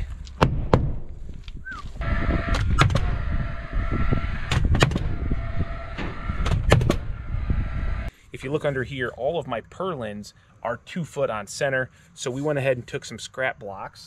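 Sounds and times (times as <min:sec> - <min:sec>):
steady whir: 0:01.8 - 0:08.1.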